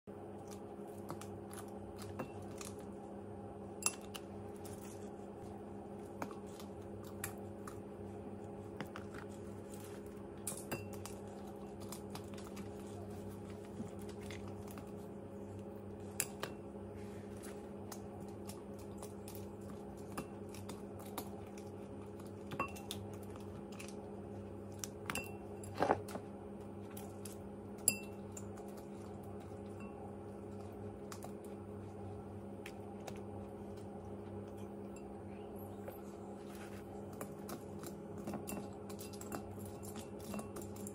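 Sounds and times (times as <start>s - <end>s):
steady low hum: 0.1s - 40.9s
brush tapping glass bowl: 27.8s - 28.5s.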